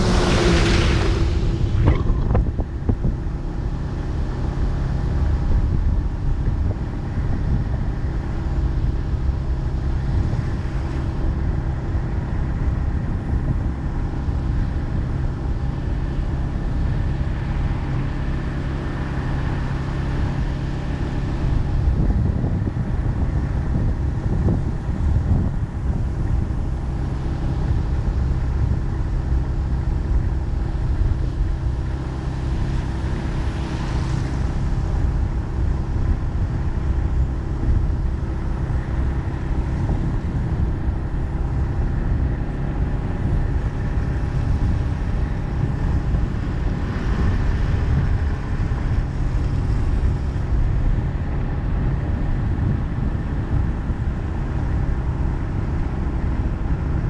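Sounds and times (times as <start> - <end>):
vehicle engine and tyre rumble: 0.0 - 57.0.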